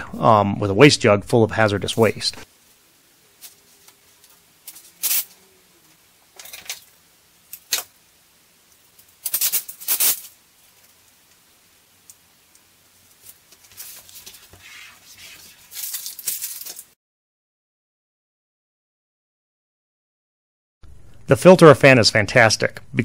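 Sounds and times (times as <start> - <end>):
tape peeling and rustling: 3.4 - 5.5, 8.7 - 11.4, 12.0 - 17.0.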